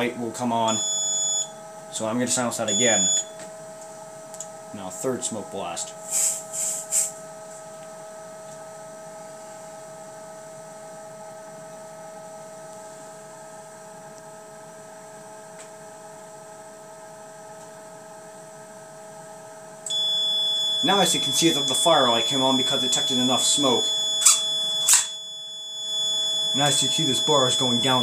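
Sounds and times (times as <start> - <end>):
smoke detector fan whine: 0.0 - 28.0
aerosol spray hisses: 6.1 - 7.1.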